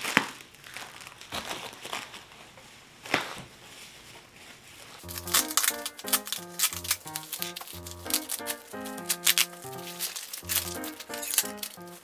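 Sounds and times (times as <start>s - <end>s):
bubble wrap crinkling: 0.0s - 12.0s
background music with beat: 5.0s - 12.0s.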